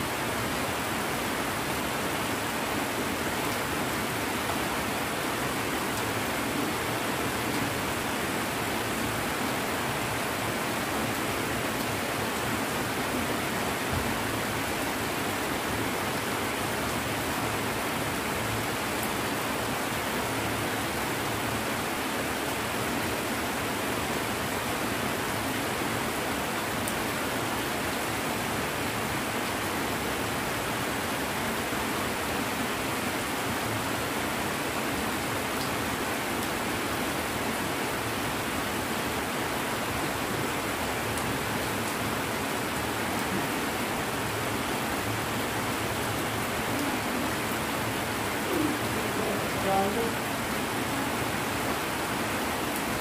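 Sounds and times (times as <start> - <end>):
heavy rain: 0.0 - 53.0.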